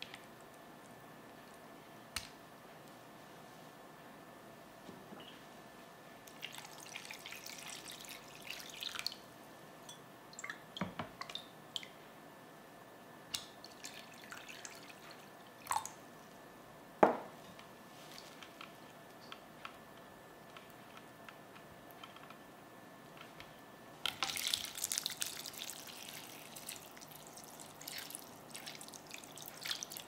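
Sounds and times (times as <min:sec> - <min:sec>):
water dripping and splashing: 0:06.3 - 0:09.2, 0:24.1 - 0:30.0
water poured into a glass bowl: 0:13.7 - 0:15.9, 0:24.2 - 0:30.0.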